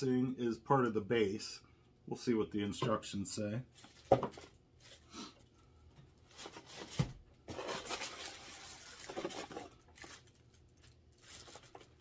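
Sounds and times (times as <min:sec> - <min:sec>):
plastic wrap crinkling: 0:03.7 - 0:05.1, 0:06.2 - 0:12.0.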